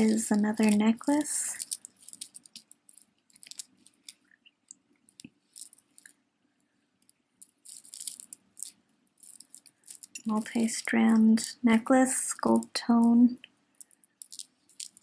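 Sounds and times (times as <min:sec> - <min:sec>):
necklace chains jingling: 0:00.0 - 0:04.2, 0:05.5 - 0:06.1, 0:07.6 - 0:11.6, 0:13.8 - 0:15.0
rustling: 0:00.0 - 0:06.2, 0:07.0 - 0:11.5, 0:13.8 - 0:15.0.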